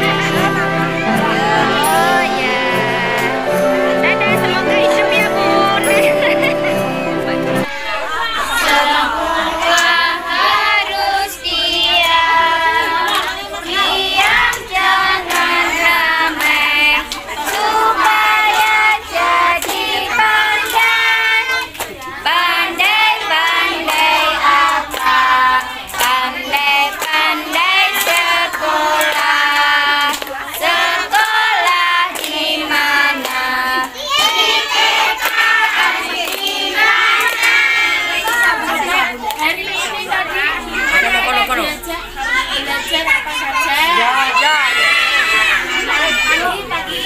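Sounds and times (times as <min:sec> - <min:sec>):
children clapping hands: 0:00.0 - 0:07.6, 0:14.2 - 0:39.6
children singing: 0:00.0 - 0:39.2.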